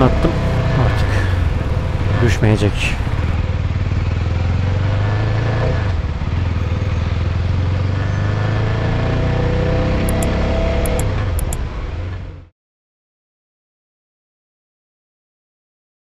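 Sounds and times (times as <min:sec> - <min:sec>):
motorcycle engine running: 0:00.0 - 0:08.7, 0:09.5 - 0:11.7
steady rush of noise: 0:00.1 - 0:03.4.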